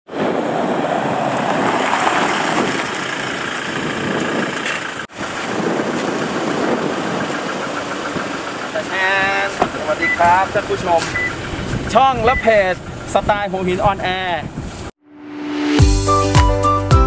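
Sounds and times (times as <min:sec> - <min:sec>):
diesel engine running: 0:02.2 - 0:13.8.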